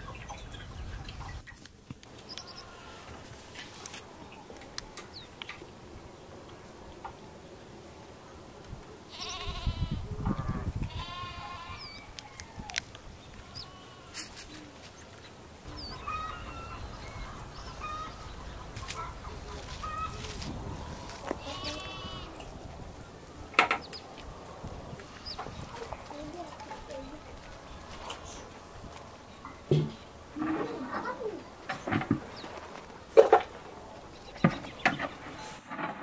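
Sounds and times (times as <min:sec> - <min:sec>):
quavering livestock bleats: 0:02.4 - 0:03.2, 0:09.1 - 0:12.0, 0:13.4 - 0:14.4, 0:21.3 - 0:22.4.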